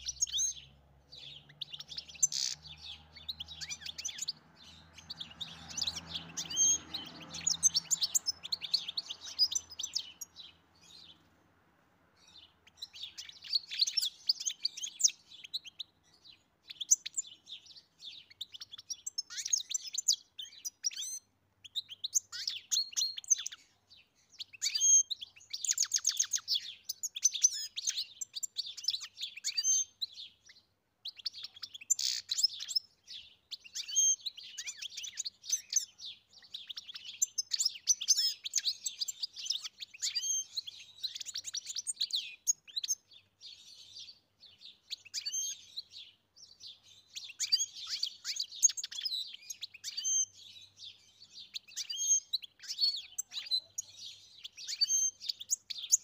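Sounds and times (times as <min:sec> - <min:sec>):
finch singing twittering song: 0:00.0 - 0:11.4, 0:12.1 - 0:56.0.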